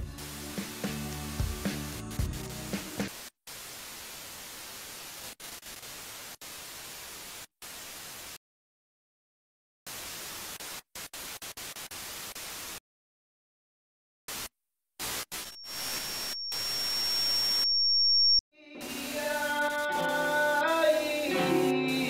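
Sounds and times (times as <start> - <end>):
music: 0.0 - 3.1, 18.6 - 22.0
static hiss: 0.0 - 8.4, 9.9 - 12.8, 14.3 - 22.0.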